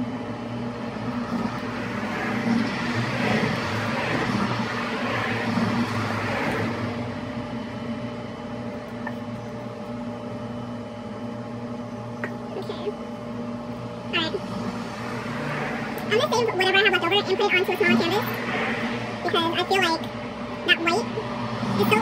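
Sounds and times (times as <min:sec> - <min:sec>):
low mechanical hum: 0:00.0 - 0:22.0
rushing wash: 0:00.9 - 0:07.1.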